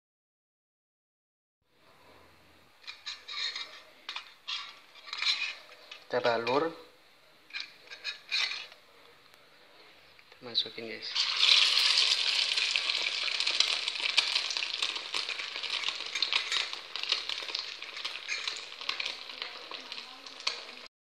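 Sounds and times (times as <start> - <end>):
patty sizzling in hot oil: 2.8 - 6.1, 10.8 - 20.9.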